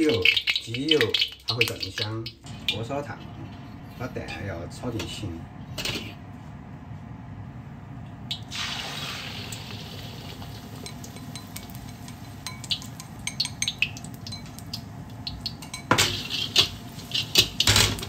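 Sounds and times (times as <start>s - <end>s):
egg sizzling in hot oil: 0.0s - 2.7s, 8.3s - 18.0s
oil crackling and popping: 0.0s - 2.8s, 8.3s - 11.9s, 12.5s - 18.0s
metal scraping wok: 15.9s - 18.0s.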